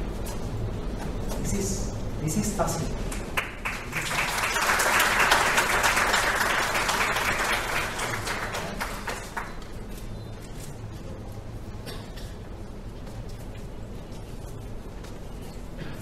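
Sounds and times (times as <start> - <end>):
audience applauding: 3.1 - 9.8.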